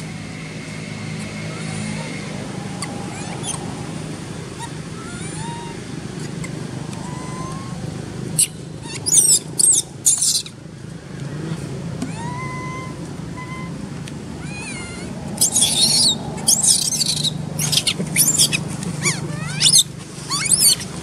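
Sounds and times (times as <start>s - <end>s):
low hum: 0.0s - 21.0s
monkey screaming: 1.1s - 10.6s, 12.1s - 21.0s.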